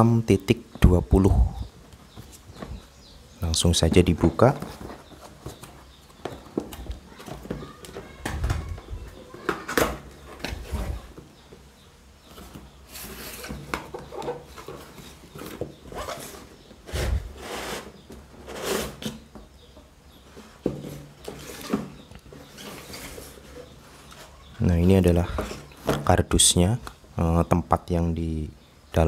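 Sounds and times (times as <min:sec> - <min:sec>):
cardboard box scraping and rustling: 0:14.4 - 0:19.2.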